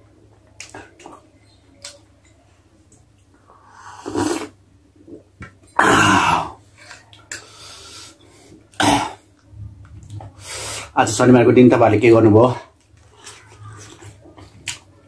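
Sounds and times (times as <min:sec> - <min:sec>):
man coughing and clearing throat: 0:08.8 - 0:09.2.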